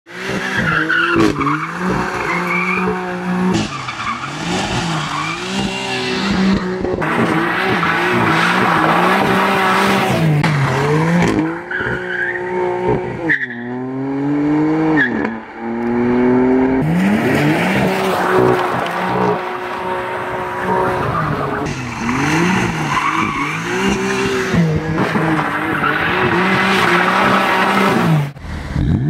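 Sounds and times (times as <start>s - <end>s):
car engine revving: 0.1s - 29.0s
tyres squealing: 16.9s - 28.2s.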